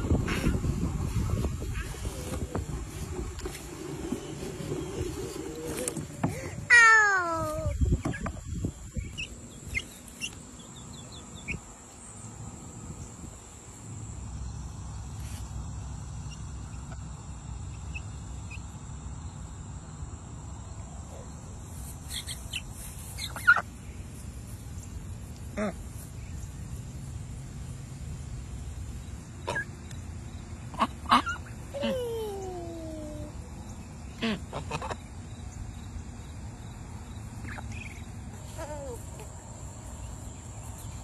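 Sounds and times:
poultry calling: 29.4 - 29.8.

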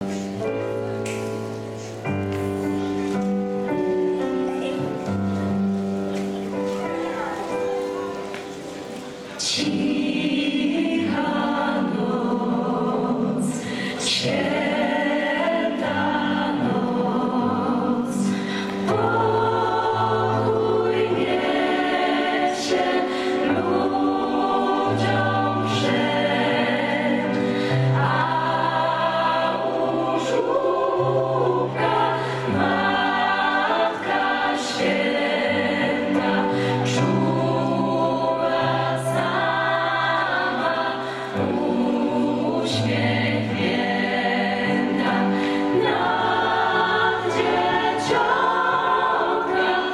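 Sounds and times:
gospel choir singing: 0.0 - 49.9.

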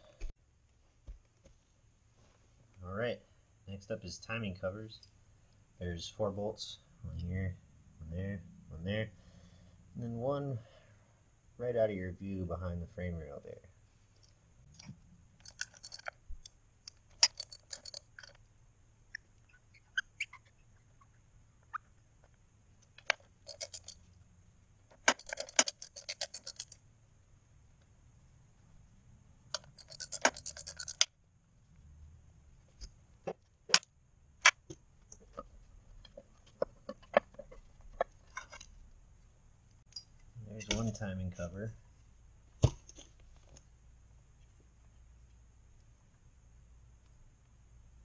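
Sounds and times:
hand ratchet clicking: 15.4 - 16.2, 16.9 - 18.4, 23.0 - 24.0, 25.0 - 26.8, 29.5 - 31.1.

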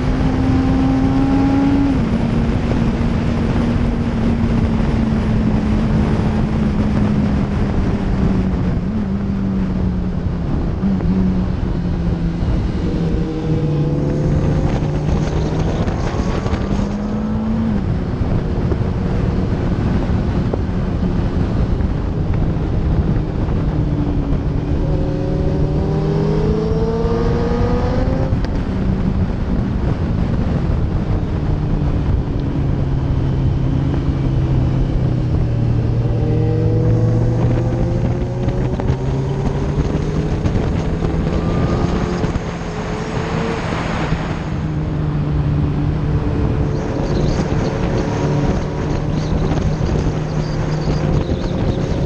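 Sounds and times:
motorcycle engine revving hard: 0.0 - 7.9, 11.4 - 20.2, 24.4 - 28.4, 33.7 - 52.0
wind rushing over microphone: 0.0 - 52.0.

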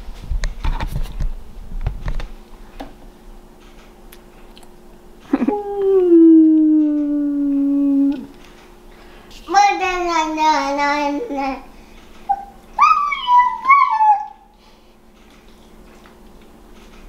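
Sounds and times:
long drawn-out vocal call: 5.5 - 8.3.

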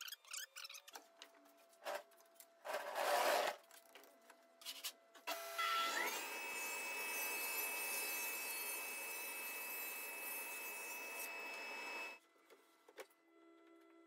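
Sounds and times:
table saw whining: 5.3 - 12.2.

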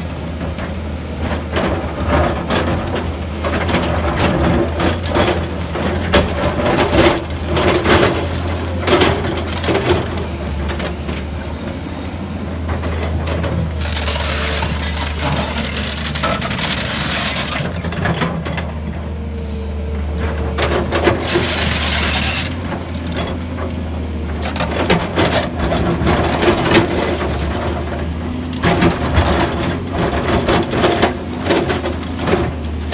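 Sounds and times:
excavator diesel engine running: 0.0 - 32.9.

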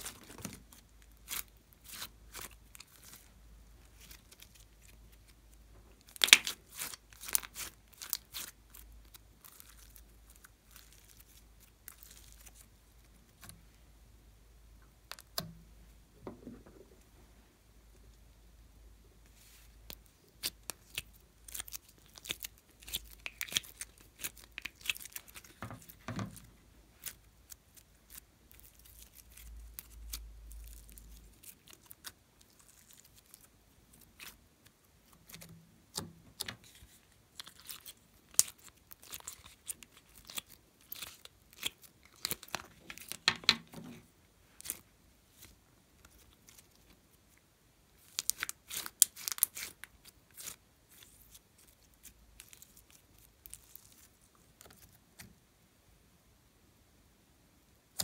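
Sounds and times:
slime squishing: 0.0 - 13.7, 19.9 - 47.0, 48.0 - 55.2.

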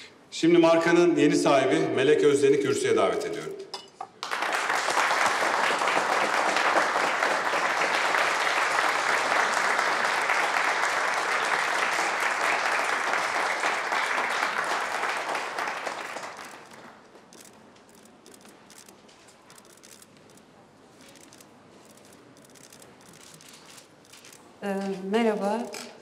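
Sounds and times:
crowd applauding: 4.2 - 18.0.

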